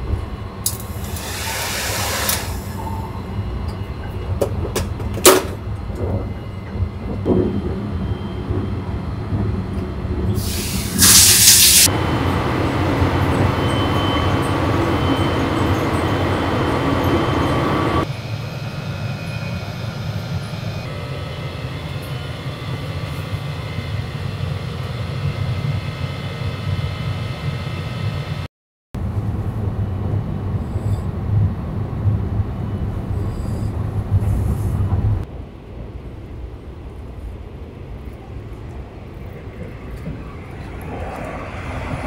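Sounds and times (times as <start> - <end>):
train running rumble: 0.0 - 42.0
loud hiss: 0.9 - 2.8, 10.4 - 11.9.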